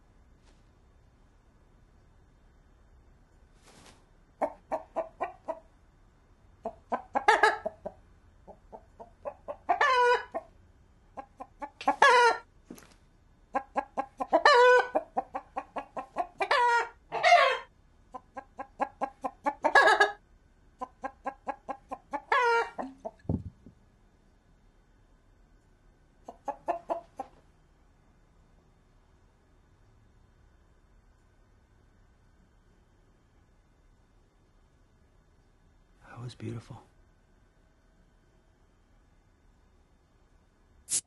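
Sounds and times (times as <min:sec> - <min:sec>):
rooster clucking: 0:04.4 - 0:05.7, 0:06.6 - 0:10.5, 0:11.1 - 0:12.5, 0:13.5 - 0:20.2, 0:20.8 - 0:23.2, 0:26.2 - 0:27.4
rooster long call: 0:16.4 - 0:17.7.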